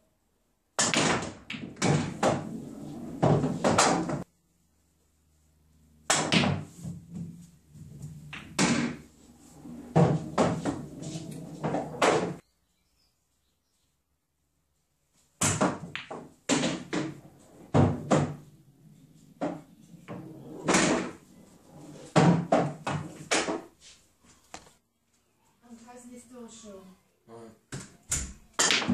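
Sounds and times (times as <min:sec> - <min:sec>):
pool balls clacking: 0:00.8 - 0:04.3, 0:08.0 - 0:12.4, 0:15.4 - 0:23.7, 0:28.6 - 0:28.9.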